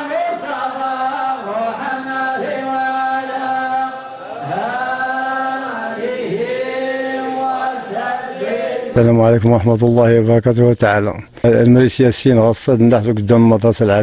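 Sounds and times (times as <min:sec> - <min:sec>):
voices chanting in unison: 0:00.0 - 0:09.1.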